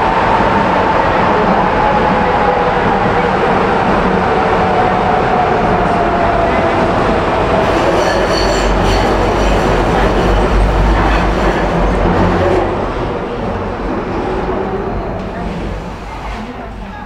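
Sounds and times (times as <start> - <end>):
metro train running: 0.0 - 17.0
wheels squealing: 7.6 - 12.6.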